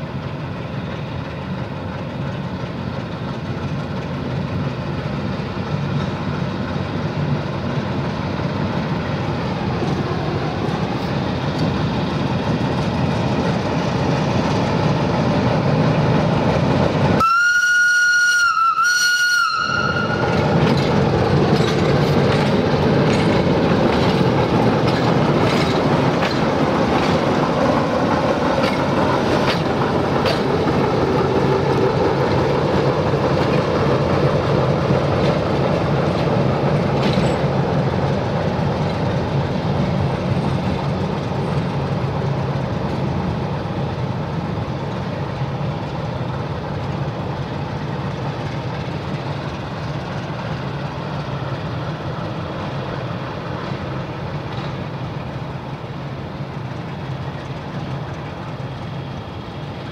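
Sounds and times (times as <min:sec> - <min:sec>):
locomotive diesel engine running: 0:00.0 - 0:59.9
high-pitched locomotive whistle: 0:17.2 - 0:20.4
wheels clicking over rail joints: 0:20.1 - 0:59.9.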